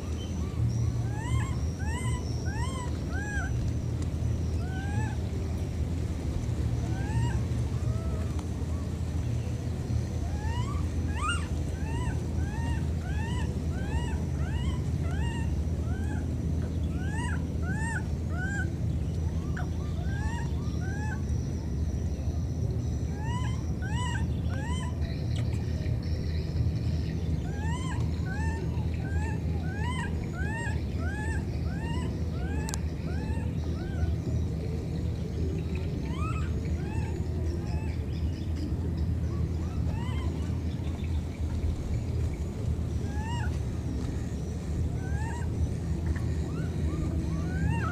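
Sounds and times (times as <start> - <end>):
baby monkey crying: 1.1 - 3.6, 6.9 - 8.2, 10.3 - 16.3, 17.0 - 18.7, 23.2 - 25.0, 27.5 - 34.1, 36.1 - 37.9, 39.6 - 40.3, 43.0 - 43.5, 44.9 - 45.5, 46.1 - 47.9.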